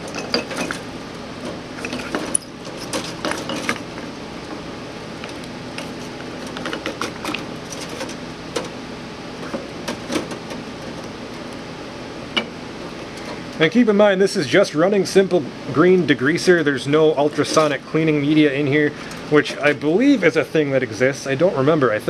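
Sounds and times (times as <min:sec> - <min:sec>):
metal parts clinking: 0:00.0 - 0:00.8, 0:01.8 - 0:03.9
steady machine hum: 0:00.0 - 0:22.0.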